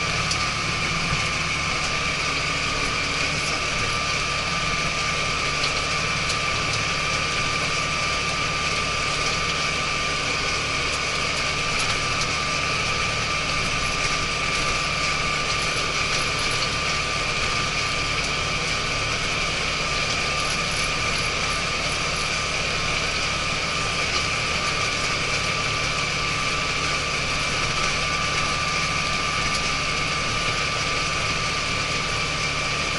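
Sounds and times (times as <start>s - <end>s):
tractor diesel engine running: 0.0s - 32.9s.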